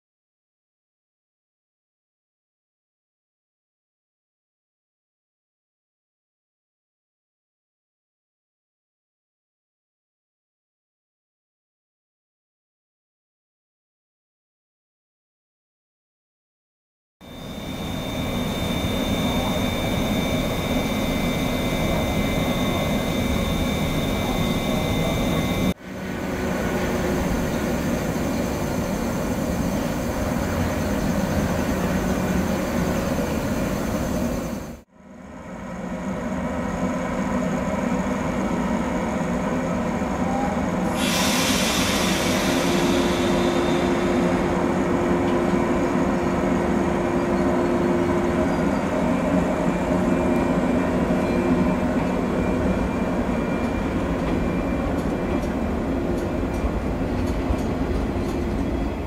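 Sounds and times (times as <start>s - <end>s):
train running on rails: 17.2s - 59.0s
hiss: 40.8s - 44.5s.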